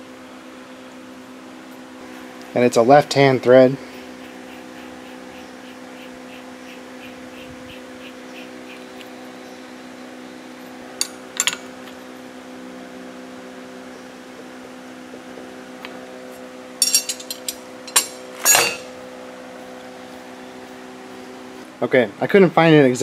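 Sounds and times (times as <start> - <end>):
steady hum: 0.0 - 23.0
metal tool clicks and clinks: 16.8 - 18.8.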